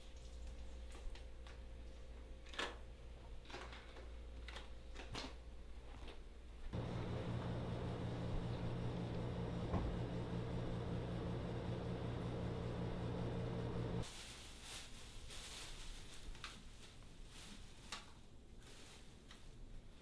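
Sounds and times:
steady low hum: 6.6 - 14.0
plastic bag crinkling: 14.0 - 19.4.

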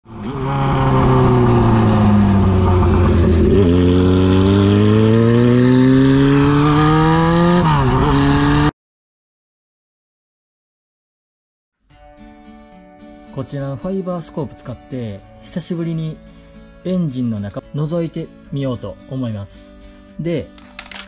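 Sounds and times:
motorcycle engine running: 0.1 - 8.6.

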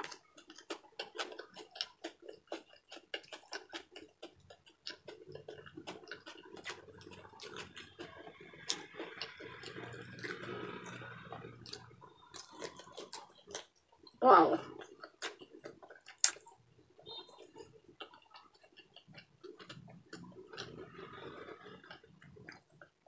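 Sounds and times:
wet chewing clicks and smacks: 0.0 - 23.0.

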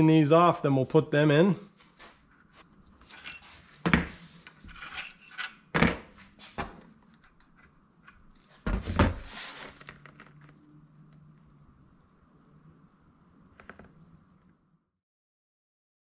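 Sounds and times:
metal parts rattling: 3.0 - 4.0, 4.6 - 6.1
metal parts knocking and clinking: 3.0 - 6.1.

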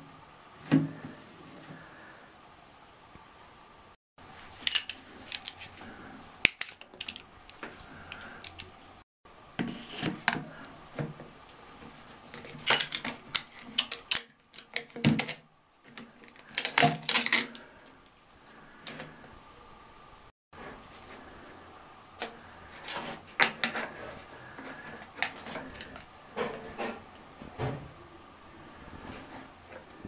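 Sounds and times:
plastic pipes clicking and clattering: 12.2 - 17.6.

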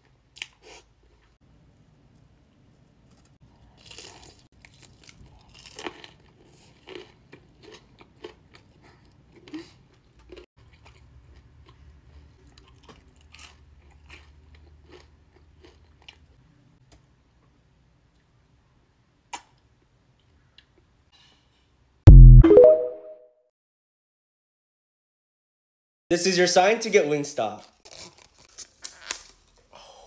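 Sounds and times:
crunching and chewing: 3.1 - 16.4, 27.6 - 29.6.

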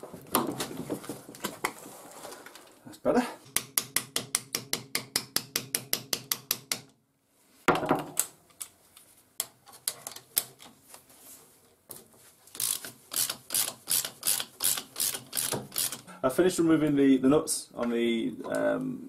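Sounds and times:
socket ratchet clicking: 12.6 - 16.1.

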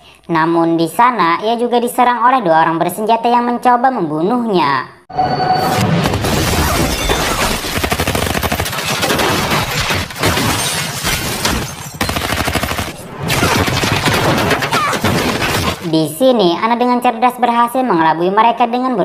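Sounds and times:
glass shattering: 5.8 - 7.8, 8.6 - 15.9
rapid gunfire: 6.0 - 10.7, 12.0 - 15.8.

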